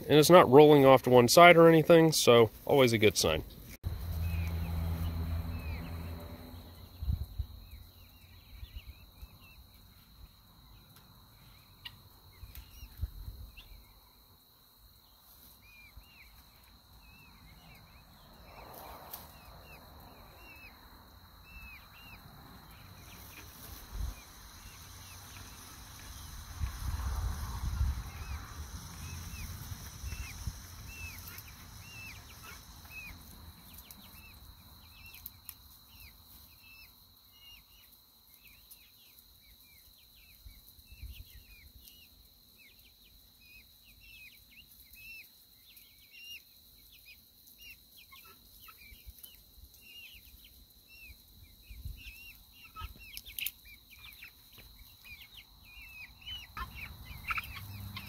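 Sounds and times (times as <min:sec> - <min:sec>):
chicken calling: 0:15.4 - 0:35.3, 0:52.1 - 0:58.0.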